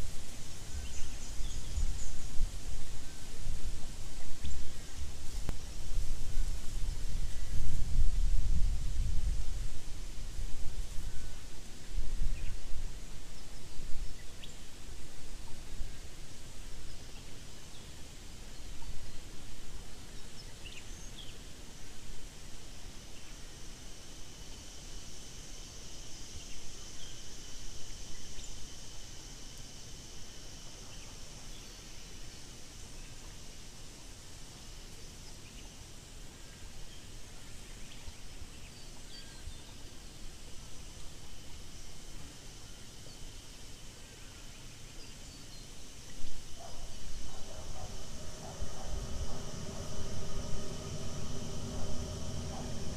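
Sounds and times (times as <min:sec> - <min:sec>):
wind rumble on microphone: 0:00.0 - 0:17.0, 0:46.1 - 0:52.9
faint high insect hum: 0:00.0 - 0:52.9
low fluctuating rumble: 0:46.1 - 0:52.9.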